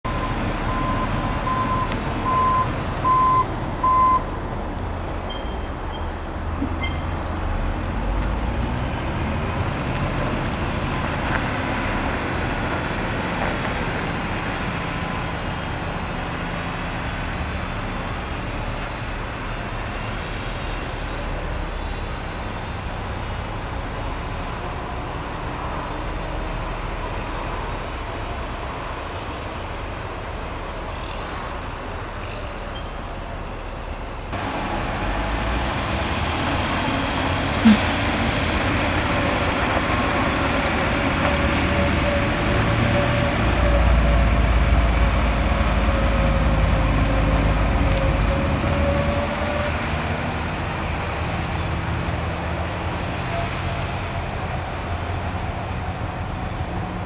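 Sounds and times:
truck reversing alarm beeping: 0:00.1 - 0:04.4, 0:05.3 - 0:07.7.

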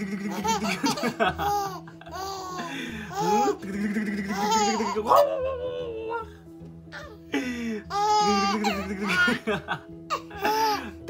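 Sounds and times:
adult cooing and talking: 0:00.0 - 0:00.7, 0:03.1 - 0:06.4, 0:07.9 - 0:09.5
infant laughing: 0:00.0 - 0:06.3, 0:07.9 - 0:11.0.

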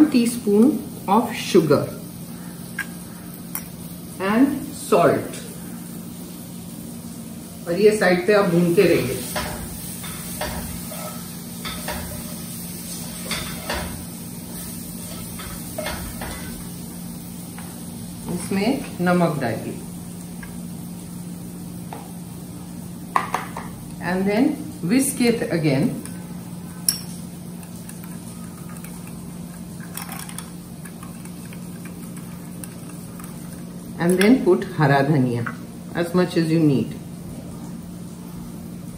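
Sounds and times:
spatula scraping a wok: 0:09.7 - 0:13.8.

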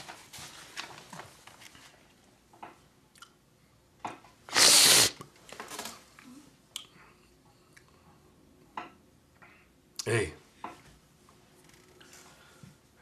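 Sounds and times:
hissing burst of breath: 0:04.5 - 0:05.2.

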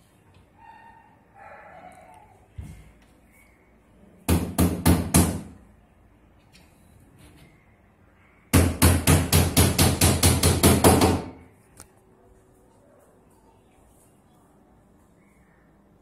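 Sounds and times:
hammer striking wood: 0:04.3 - 0:05.6, 0:08.5 - 0:11.4.

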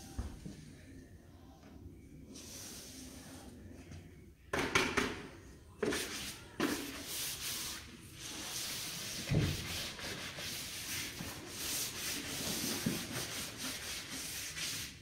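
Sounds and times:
bristle brush scrubbing wall: 0:05.8 - 0:15.0.

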